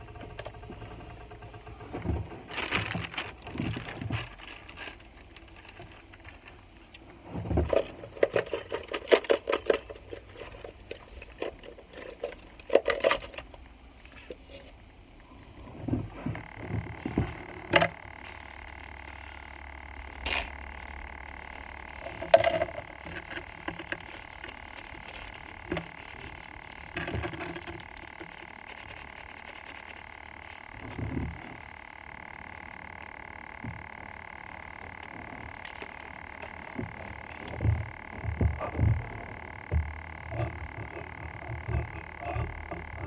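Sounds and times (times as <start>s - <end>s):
plastic bags crinkling: 2.3s - 6.8s, 21.6s - 30.7s.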